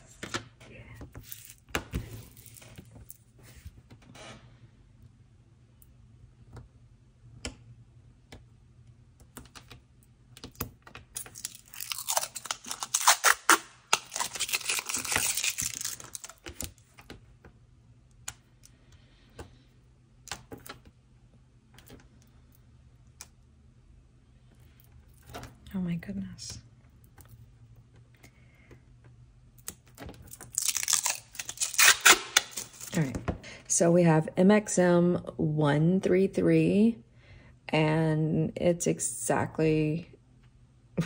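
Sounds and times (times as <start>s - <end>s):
plastic film peeling off: 11.2s - 16.8s, 30.3s - 33.0s.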